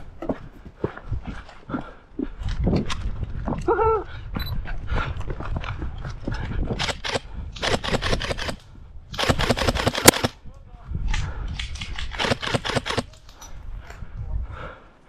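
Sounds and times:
airsoft gun bursts: 9.2 - 10.3.

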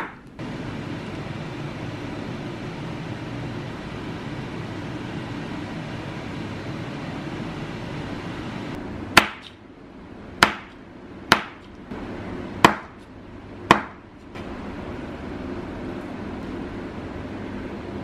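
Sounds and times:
cleaver chopping on cutting board: 9.2 - 9.6, 10.4 - 11.7, 12.6 - 13.0, 13.7 - 14.0.

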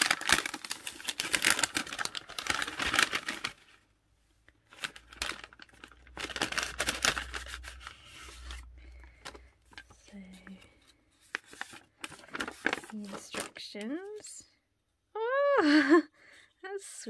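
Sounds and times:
paper packet crinkling: 0.0 - 3.9, 4.6 - 14.3.

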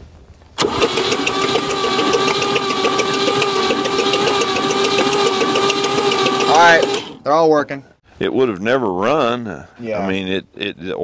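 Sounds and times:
rocker arms ticking: 0.6 - 7.2
starter motor whine: 0.6 - 7.3.

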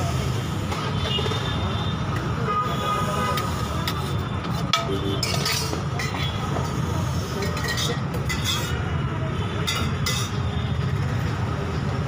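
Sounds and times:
low traffic rumble: 0.0 - 12.0
dishes and utensils clinking: 3.4 - 6.4, 7.4 - 8.8, 9.6 - 10.4.

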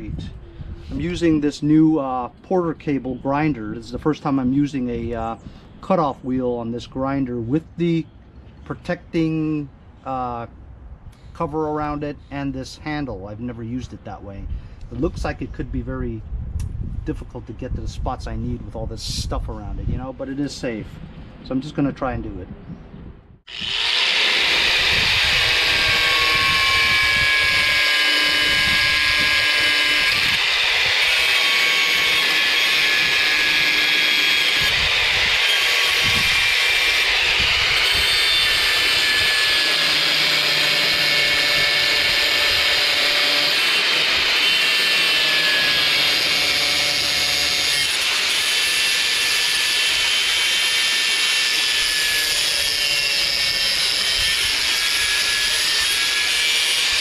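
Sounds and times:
angle grinder whining: 23.5 - 57.0.

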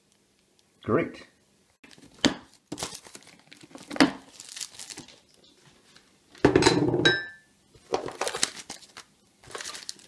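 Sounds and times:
plastic wrap rustling: 1.8 - 6.4, 7.7 - 10.0
plastic case handled and opened: 1.9 - 5.2, 7.8 - 10.0.

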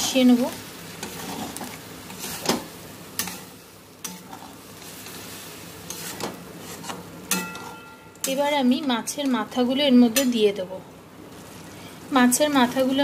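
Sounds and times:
water sizzling in pan: 0.0 - 13.0
spatula scraping metal pan: 1.0 - 2.6, 5.9 - 8.5
spatula clinking on pan: 7.3 - 8.4.

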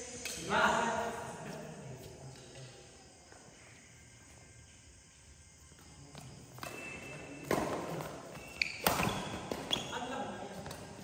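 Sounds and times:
racket striking shuttlecock: 6.6 - 9.9
shoe squeaks on court floor: 6.6 - 10.2.

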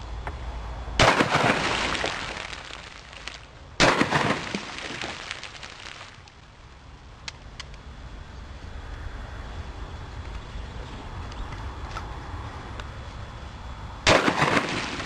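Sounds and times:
shotgun blasts: 3.8 - 5.1, 14.1 - 15.0.

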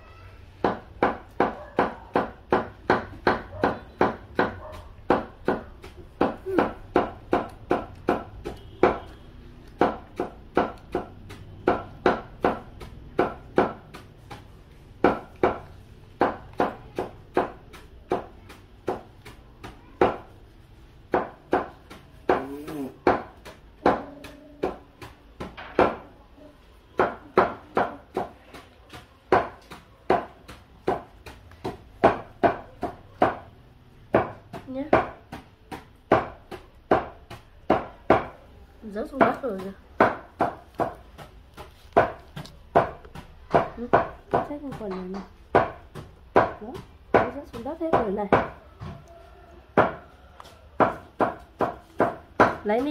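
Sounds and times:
sharp knocks on hard surface: 0.6 - 20.4, 21.1 - 26.1, 26.9 - 38.4, 39.0 - 49.0, 49.8 - 50.1, 50.8 - 52.9.

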